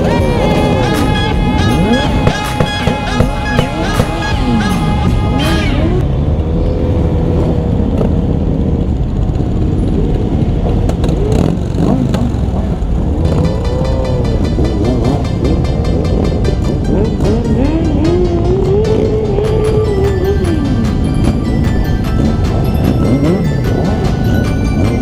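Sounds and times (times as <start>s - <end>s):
music: 0.0s - 6.0s, 13.2s - 25.0s
motorcycle engines idling and revving: 0.0s - 25.0s.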